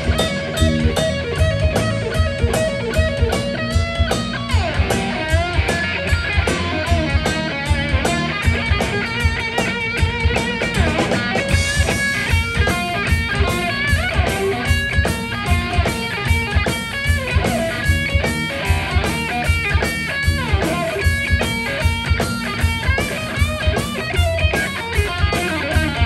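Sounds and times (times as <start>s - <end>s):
bass guitar: 0.0s - 26.0s
electric guitar bending notes: 0.0s - 26.0s
steady drum beat: 0.0s - 26.0s.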